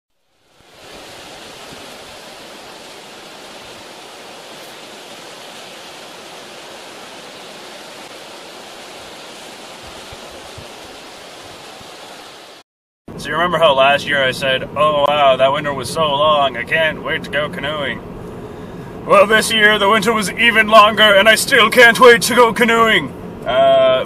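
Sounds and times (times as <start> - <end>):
waterfall rushing: 0.3 - 12.6.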